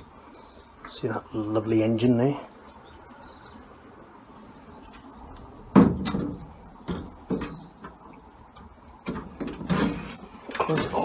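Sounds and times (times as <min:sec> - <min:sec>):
sheet-metal bonnet clunks and knocks: 0:05.6 - 0:11.0.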